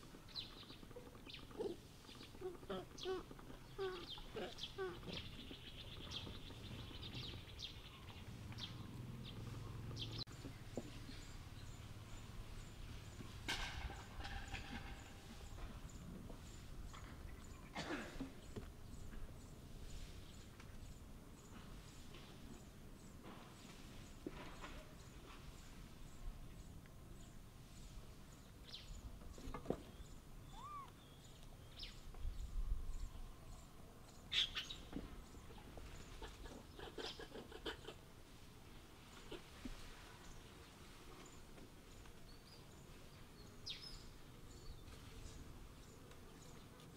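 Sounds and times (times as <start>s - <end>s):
high animal chirps: 30.5s - 30.9s
animal call: 30.5s - 31.0s.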